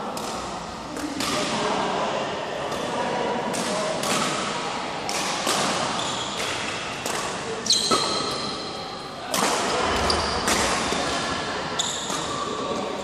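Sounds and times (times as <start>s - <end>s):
rackets hitting shuttlecock: 0.1s - 1.7s, 2.6s - 13.0s
shoes squeaking on court floor: 5.9s - 6.6s, 7.6s - 8.8s, 9.8s - 11.0s, 11.7s - 12.8s.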